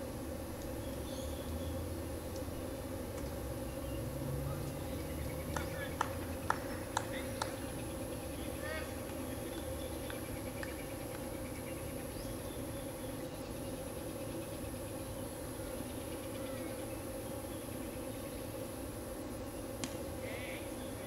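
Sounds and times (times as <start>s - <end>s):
steady droning hum: 0.0s - 21.0s.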